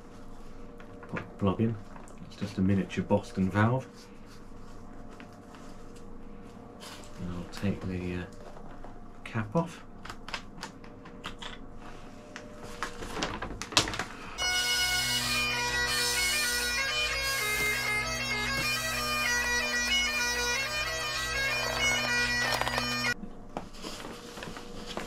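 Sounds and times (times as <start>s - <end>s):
fabric and plastic rustling: 4.0s - 7.7s, 11.8s - 14.4s, 23.6s - 25.0s
bagpipe music: 14.3s - 23.2s.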